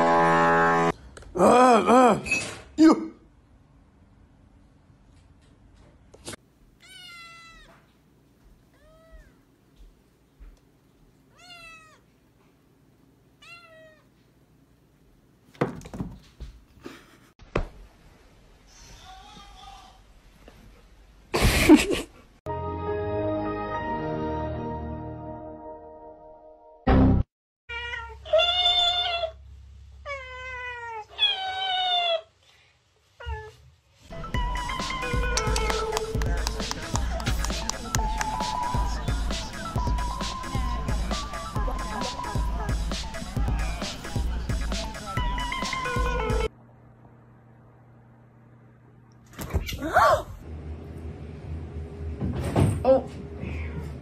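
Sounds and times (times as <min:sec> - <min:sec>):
kitten meowing: 0:06.8 - 0:07.8, 0:08.8 - 0:09.4, 0:11.4 - 0:12.0, 0:13.4 - 0:14.0
low steady hum: 0:46.4 - 0:54.0.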